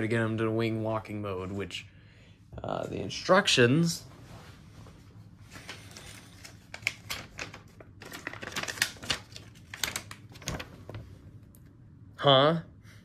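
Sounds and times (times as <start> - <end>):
paper leaflet crackling: 5.5 - 10.7.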